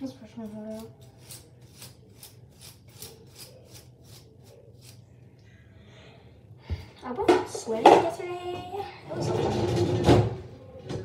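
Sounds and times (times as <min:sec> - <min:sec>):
hairbrush rasping through hair: 0:00.6 - 0:05.0.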